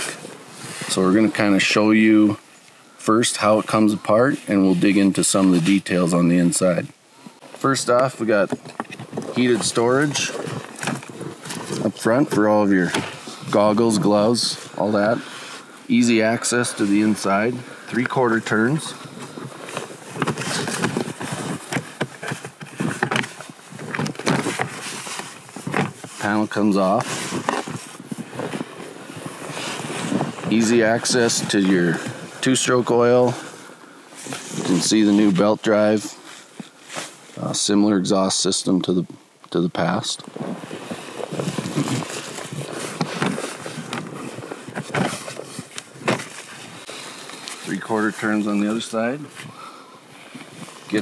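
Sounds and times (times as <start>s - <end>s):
close breathing: 7.0s - 7.6s, 13.0s - 13.6s, 14.6s - 23.1s, 31.7s - 32.4s, 33.2s - 34.7s, 49.2s - 51.0s
clothing rustling: 7.4s - 37.5s, 40.3s - 51.0s
footsteps crunching in snow: 8.2s - 37.5s, 40.3s - 51.0s.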